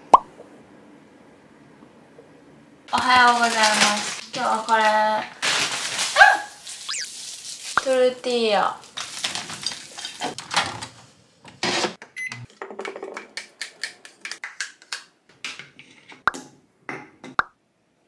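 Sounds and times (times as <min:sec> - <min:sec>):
plastic wrap crinkling: 0:02.9 - 0:10.4.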